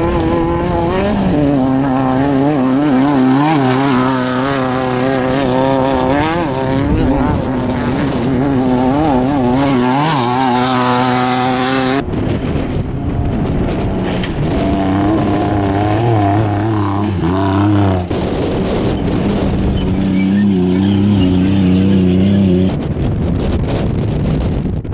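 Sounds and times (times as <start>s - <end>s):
off-road engines revving: 0.0s - 22.9s.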